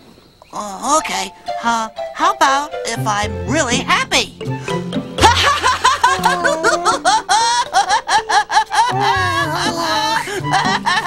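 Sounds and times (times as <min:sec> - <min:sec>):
light background music: 0:00.6 - 0:11.0
high character voice giggling: 0:05.2 - 0:11.0.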